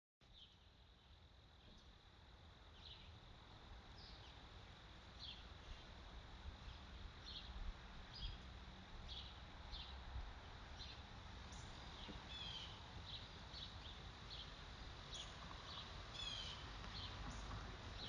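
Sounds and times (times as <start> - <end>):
steady soft hiss: 0.3 - 18.0
small bird chirping: 2.7 - 3.2, 6.6 - 8.5, 10.7 - 18.0.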